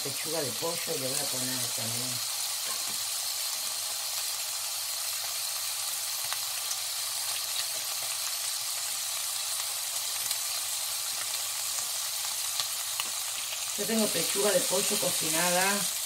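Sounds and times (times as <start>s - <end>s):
bacon sizzling in a wok: 0.0s - 16.0s.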